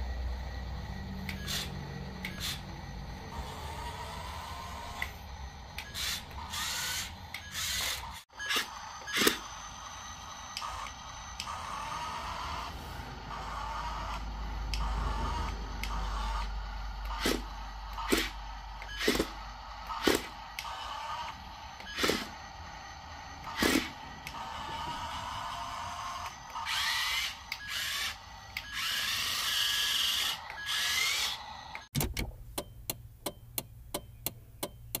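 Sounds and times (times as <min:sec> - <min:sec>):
toy truck motors whirring: 0:00.0 - 0:31.9
steady ticking clicks: 0:31.7 - 0:35.0.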